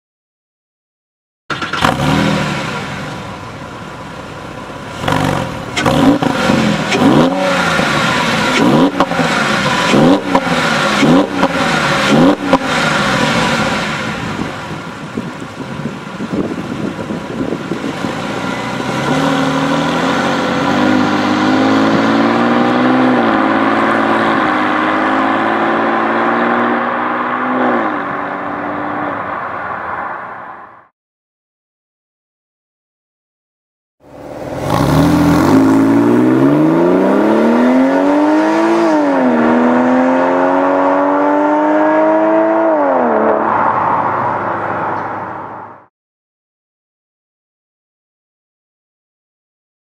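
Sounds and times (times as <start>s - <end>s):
exhaust cracks: 1.5s - 3.5s
car engine revving: 1.5s - 15.1s, 16.6s - 29.9s, 34.2s - 45.6s
car accelerating: 4.8s - 15.5s, 16.2s - 30.4s, 34.2s - 45.9s.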